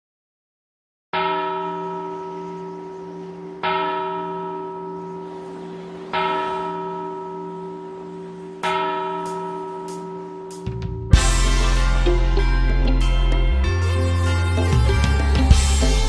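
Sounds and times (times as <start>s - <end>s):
church bell tolling: 1.2s - 16.0s.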